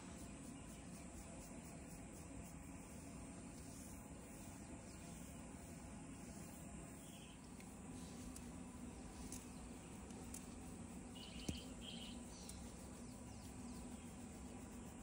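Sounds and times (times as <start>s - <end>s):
steady low hum: 0.0s - 15.0s
small bird chirping: 4.4s - 15.0s.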